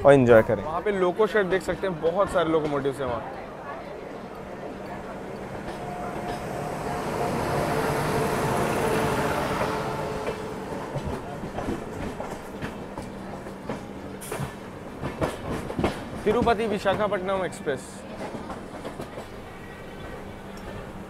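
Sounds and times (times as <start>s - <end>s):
electric locomotive hum: 0.6s - 21.0s
train wheels clacking over joints: 4.3s - 21.0s.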